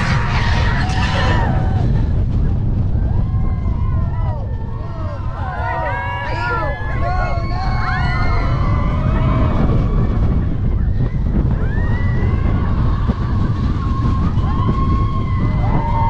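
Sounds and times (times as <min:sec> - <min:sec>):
high squeals: 0:00.0 - 0:01.8
roller coaster rumble: 0:00.0 - 0:16.0
wind buffeting microphone: 0:00.0 - 0:16.0.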